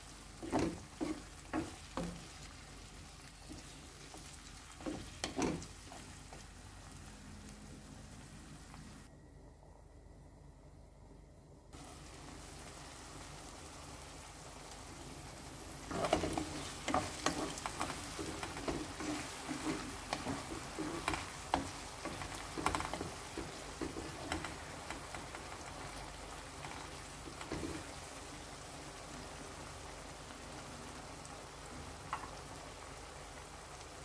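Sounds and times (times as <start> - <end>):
wooden spoon stirring and scraping: 0.0 - 6.6, 15.8 - 28.0
vegetables sizzling in oil: 0.0 - 9.1, 11.8 - 34.0.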